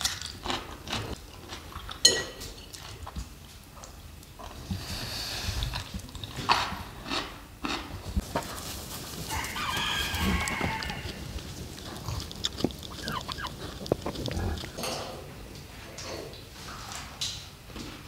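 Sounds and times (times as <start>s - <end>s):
hens clucking: 8.1s - 14.8s
rooster crowing: 9.2s - 11.4s.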